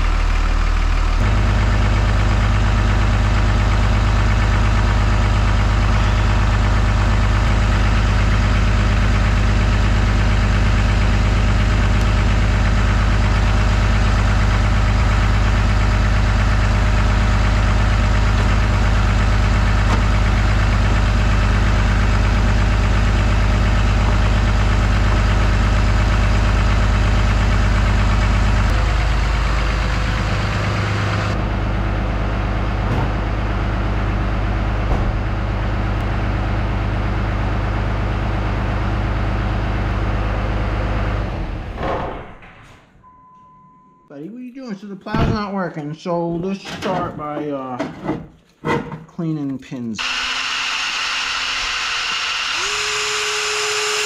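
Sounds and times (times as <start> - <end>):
truck engine idling: 0.0 - 42.4.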